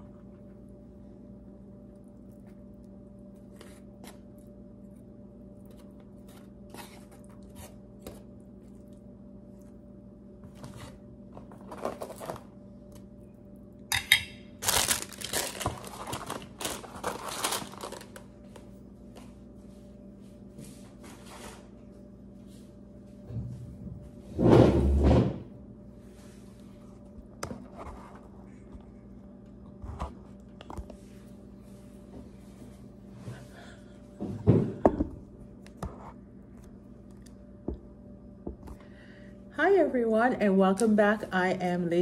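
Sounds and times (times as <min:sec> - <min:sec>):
steady low hum: 0:00.0 - 0:42.0
packaging crinkling and rustling: 0:11.4 - 0:12.5, 0:14.6 - 0:18.6.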